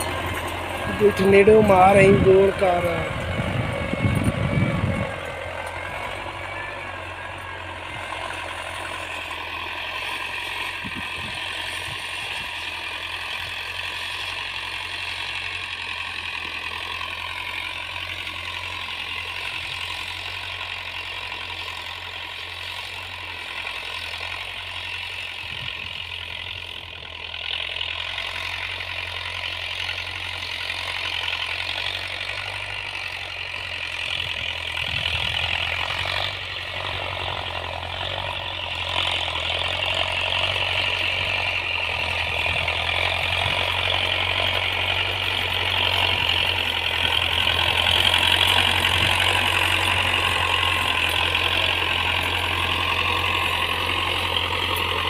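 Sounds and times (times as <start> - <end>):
distant tractor diesel engine: 0.0 - 55.0.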